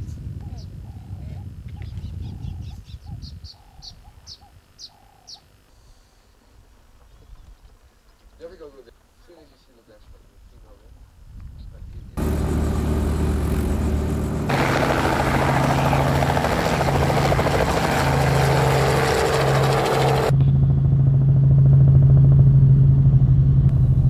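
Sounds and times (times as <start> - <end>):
helicopter engine and rotor: 12.2 - 24.0.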